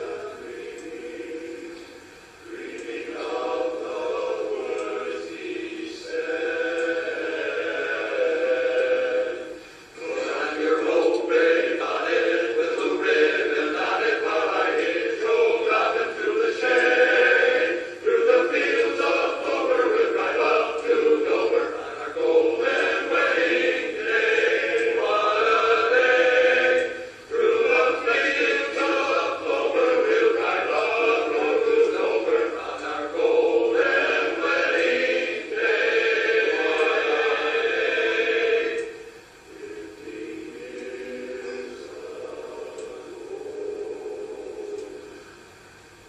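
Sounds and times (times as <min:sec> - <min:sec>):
men's chorus singing a cappella: 0:00.0 - 0:45.8.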